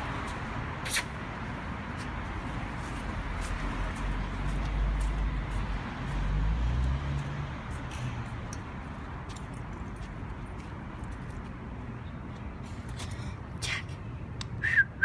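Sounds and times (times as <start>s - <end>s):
hiss of passing vehicles: 0.0s - 8.6s.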